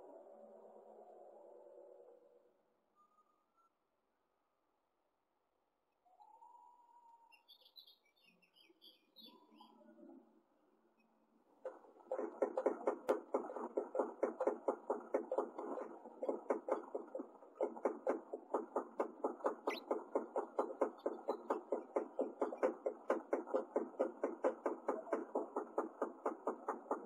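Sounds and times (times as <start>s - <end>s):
faint high chick chirps: 6.0s - 10.0s.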